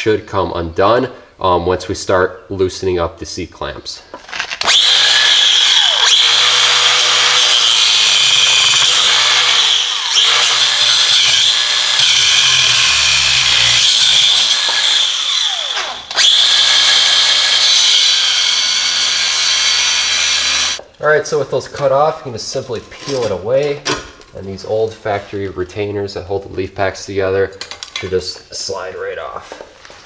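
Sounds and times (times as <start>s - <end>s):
angle grinder cutting steel: 4.6s - 20.8s.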